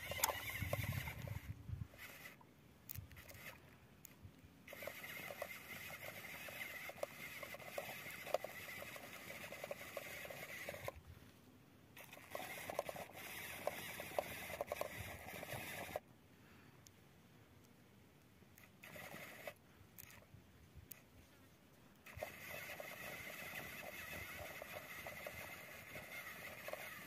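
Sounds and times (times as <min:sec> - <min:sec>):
wheels crackling on dirt: 0:00.0 - 0:02.4, 0:04.7 - 0:11.3, 0:22.0 - 0:27.0
toy motor and gears whirring: 0:00.0 - 0:11.0, 0:12.0 - 0:16.0, 0:18.6 - 0:20.3, 0:22.0 - 0:27.0.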